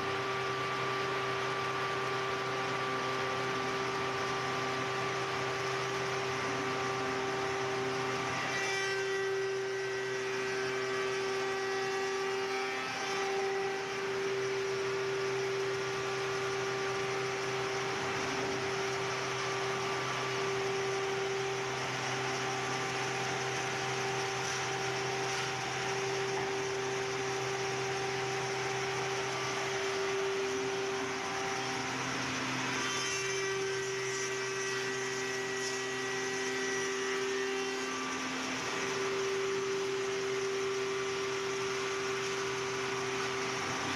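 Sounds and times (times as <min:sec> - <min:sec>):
woodworking shaper humming: 0:00.0 - 0:43.9
wood cutting hiss: 0:16.2 - 0:43.9.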